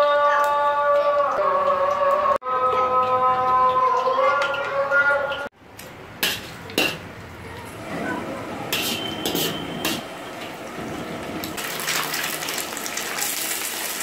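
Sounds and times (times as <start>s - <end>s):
metal spoon scraping wok: 6.2s - 7.1s, 8.7s - 10.1s
eggs sizzling in a wok: 11.6s - 14.0s.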